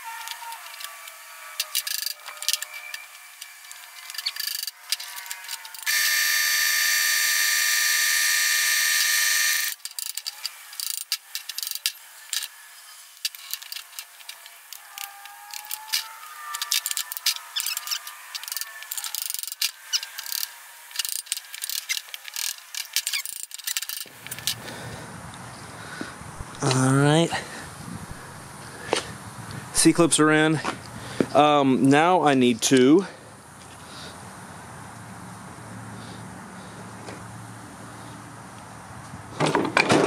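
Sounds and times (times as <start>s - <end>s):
loud multi-pitch tone: 0.0s - 9.8s.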